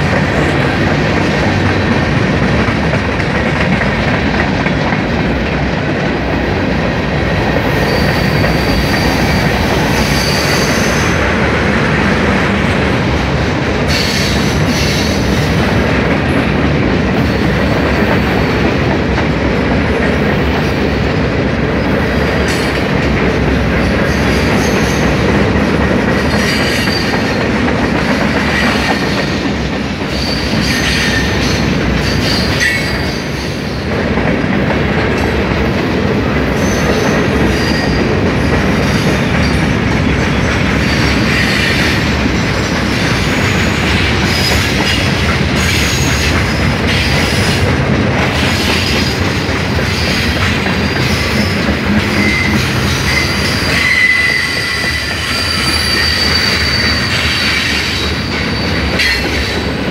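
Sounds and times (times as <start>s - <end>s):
train wheels rumbling on rail: 0.0s - 59.9s
high-pitched wheel squeals: 52.2s - 57.6s.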